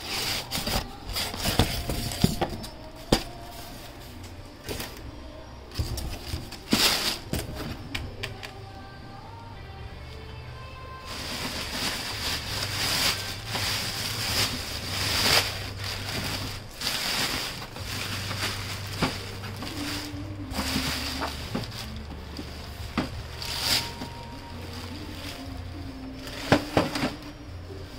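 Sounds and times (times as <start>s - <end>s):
plastic bag crinkling: 11.0s - 27.4s.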